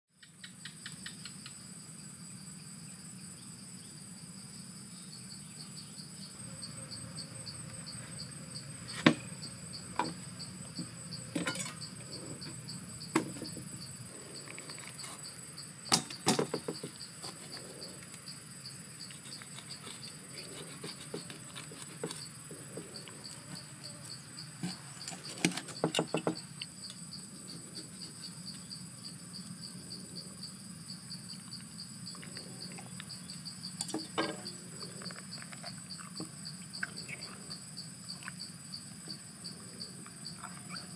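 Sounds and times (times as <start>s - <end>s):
insects chirring: 0.2s - 40.9s
knife knocking on wooden board: 15.9s - 17.0s, 25.8s - 26.4s.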